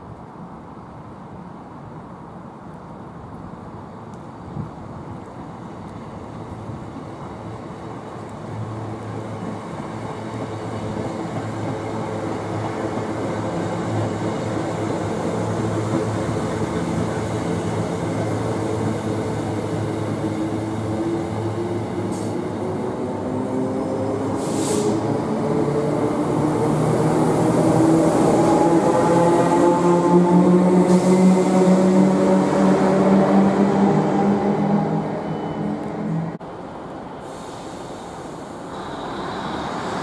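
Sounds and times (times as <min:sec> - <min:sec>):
electric train pulling in: 0:07.1 - 0:40.0
brief hiss: 0:24.4 - 0:25.0, 0:37.1 - 0:40.0.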